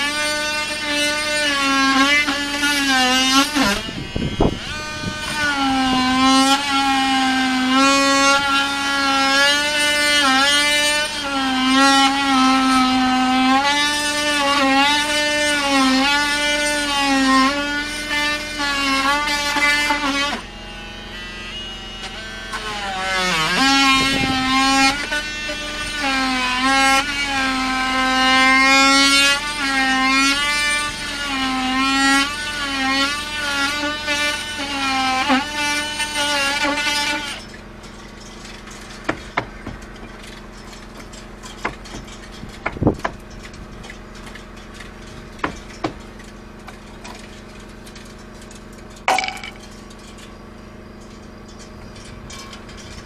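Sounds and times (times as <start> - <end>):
power tool on wooden planking: 0.0 - 53.0
sharp knocks and clicks: 39.0 - 50.2.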